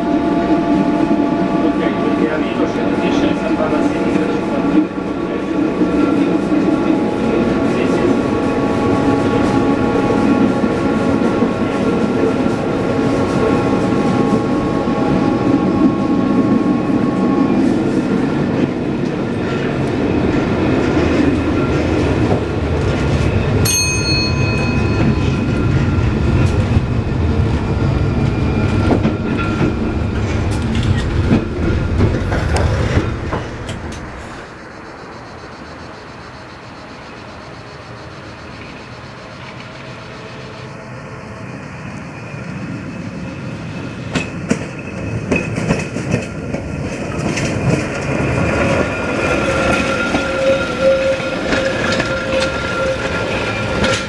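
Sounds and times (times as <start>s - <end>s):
tram wheels rumbling on rail: 0.0s - 54.0s
brief high tone: 23.7s - 25.6s.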